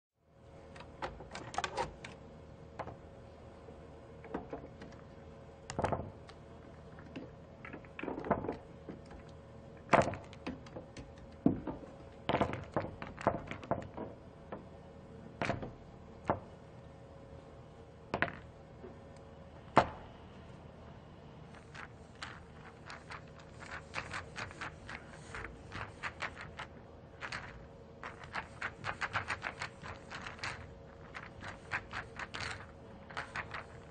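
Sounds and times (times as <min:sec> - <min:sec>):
faint steady hum: 0:00.2 - 0:33.9
balls rolling on pool table: 0:00.7 - 0:03.4, 0:04.1 - 0:16.7, 0:18.0 - 0:20.1, 0:21.5 - 0:33.9
pool balls clacking: 0:04.2 - 0:14.8, 0:18.1 - 0:19.0.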